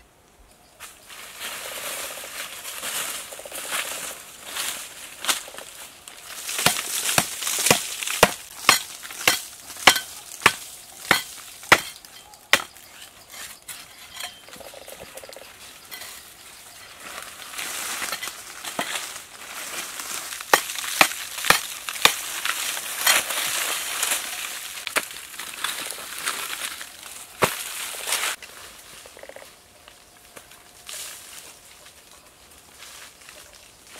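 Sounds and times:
loose earth scraping and crumbling: 0.8s - 33.9s
machete chopping into earth: 6.5s - 12.0s, 27.4s - 27.7s.

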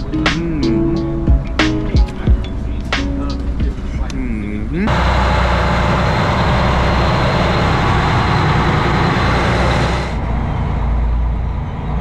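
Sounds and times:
boat engine drone: 3.8s - 12.0s.

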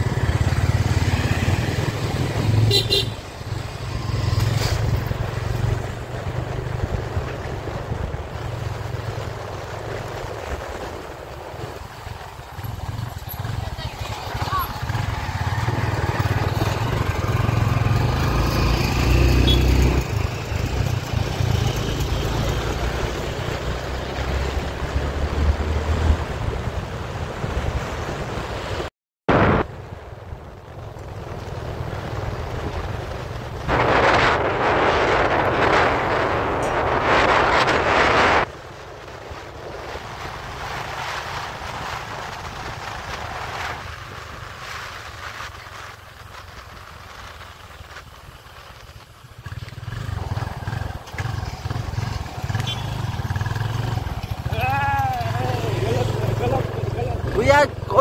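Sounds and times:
motorcycle engine running: 0.0s - 25.6s, 30.4s - 58.0s
road noise: 0.0s - 58.0s
wind rushing over microphone: 0.0s - 58.0s
wind on microphone: 22.9s - 47.6s
loud rushing noise: 32.3s - 44.6s.

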